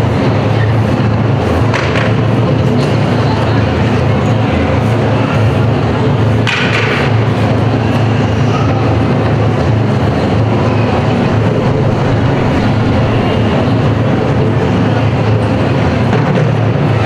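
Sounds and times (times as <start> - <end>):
taiko drumming roll: 8.7 - 17.0.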